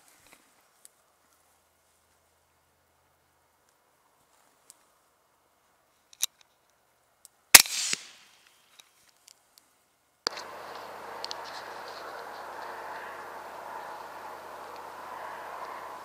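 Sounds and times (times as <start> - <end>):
rifle shot: 7.6 - 8.4
faint click: 10.3 - 11.6
steady rushing noise: 10.3 - 16.0.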